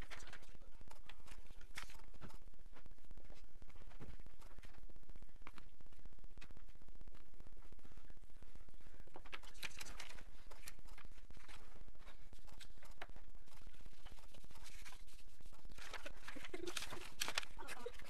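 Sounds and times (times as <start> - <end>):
paper rustling: 0.0 - 2.4, 9.1 - 18.0
steady low hum: 0.0 - 18.0.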